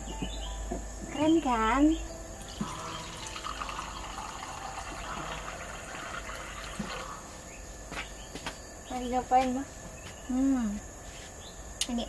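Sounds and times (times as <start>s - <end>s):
water trickling into a cup: 2.4s - 7.4s.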